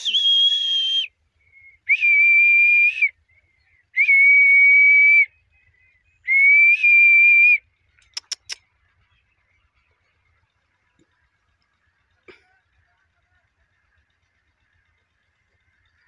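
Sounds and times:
high whistle notes: 0.0s - 1.1s
sharp clicks: 8.0s - 8.7s.

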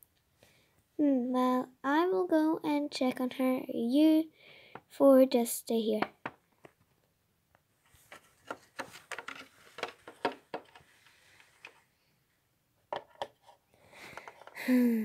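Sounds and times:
soft rustle: 7.7s - 12.4s.

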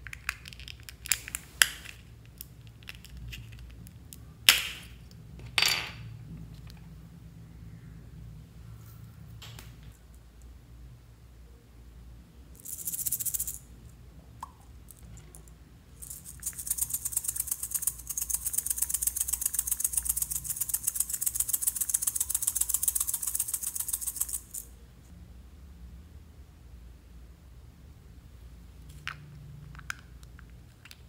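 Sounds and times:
plastic rattle shaken: 12.6s - 13.6s, 16.0s - 24.7s.

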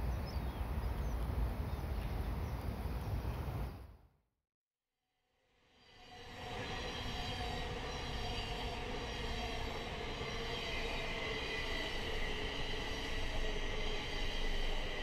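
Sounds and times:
train rumbling on rails: 5.8s - 15.0s.

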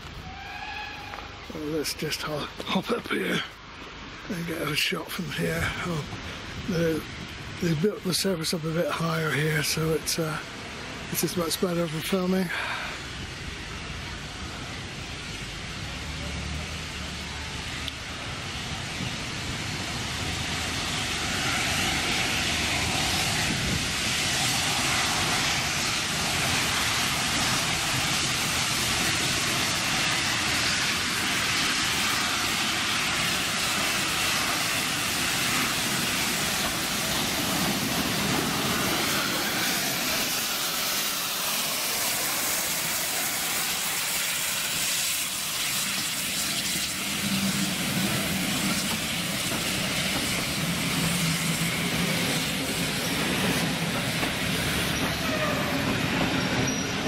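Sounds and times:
steam hissing: 0.0s - 57.0s
steam locomotive running: 0.0s - 57.0s
train coaches rolling: 0.0s - 57.0s.

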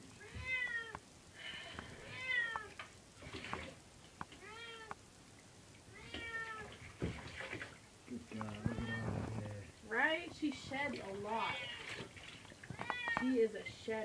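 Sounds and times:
cat meowing: 0.2s - 1.0s, 2.0s - 2.8s, 4.4s - 5.0s, 5.9s - 6.7s, 8.5s - 9.4s, 11.3s - 12.0s, 12.7s - 13.3s.

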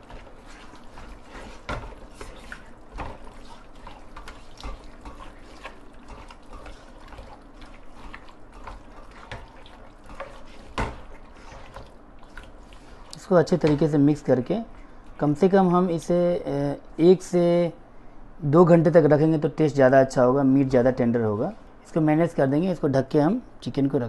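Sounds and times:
hands squelching in marinade: 0.0s - 14.0s.

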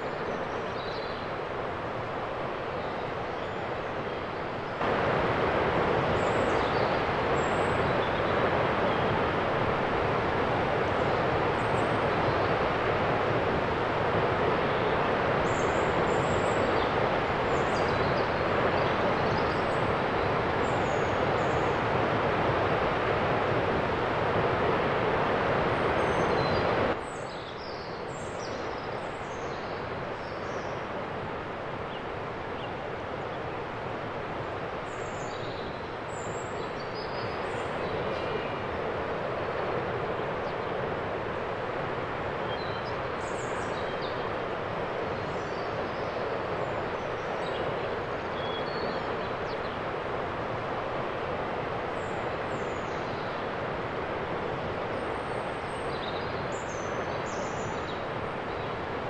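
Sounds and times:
waterfall rushing: 1.2s - 27.0s, 30.8s - 59.0s.

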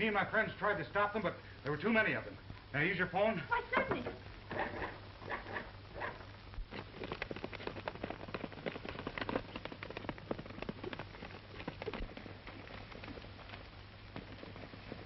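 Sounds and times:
film soundtrack hum and hiss: 0.0s - 15.0s
galloping horse hoofbeats: 3.8s - 15.0s.

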